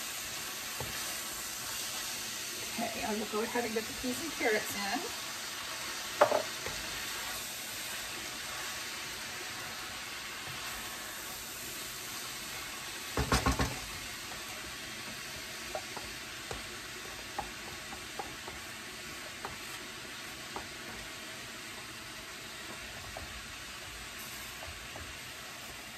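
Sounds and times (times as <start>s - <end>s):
food sizzling in a wok: 0.0s - 25.9s
wooden spoon knocking wok: 6.1s - 6.9s, 13.1s - 25.2s.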